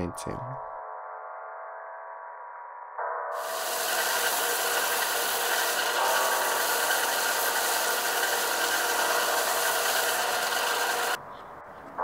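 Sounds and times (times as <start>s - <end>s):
belt sander rasping: 3.4s - 11.2s.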